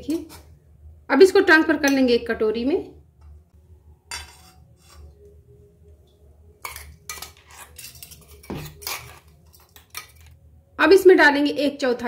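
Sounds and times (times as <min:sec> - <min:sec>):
metal spoon clinking: 0:04.1 - 0:05.1, 0:06.6 - 0:10.3
metal scraping: 0:04.1 - 0:05.4, 0:06.6 - 0:10.4.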